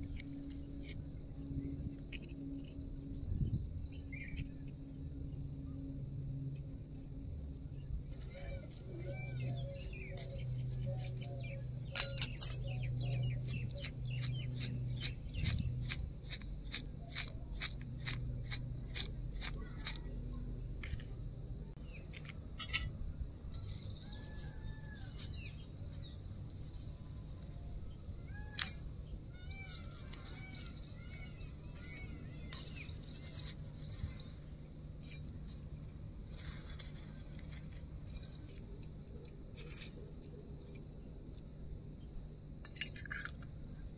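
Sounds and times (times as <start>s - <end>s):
spoon clinking against steel bowl: 12.0s - 12.7s.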